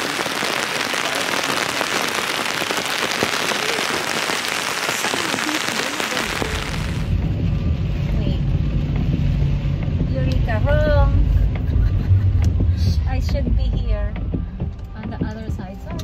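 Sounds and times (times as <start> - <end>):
heavy rain on an umbrella: 0.0 - 7.1.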